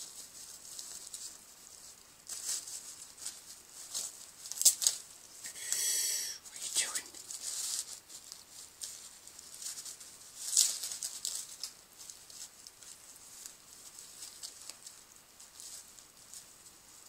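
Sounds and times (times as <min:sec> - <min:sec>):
plastic bag crinkling: 0:06.8 - 0:17.0.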